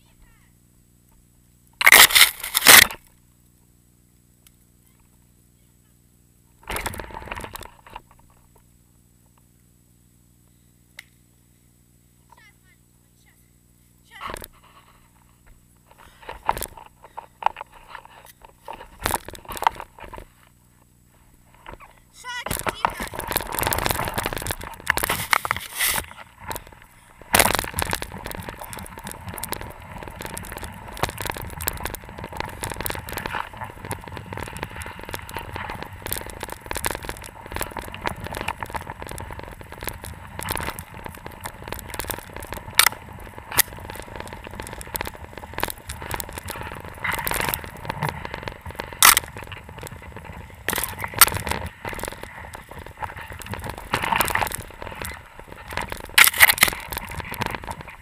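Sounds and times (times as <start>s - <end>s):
branches cracking and crackling: 1.8s - 3.6s, 6.6s - 8.6s, 14.2s - 58.0s
skis crunching through snow: 21.5s - 58.0s.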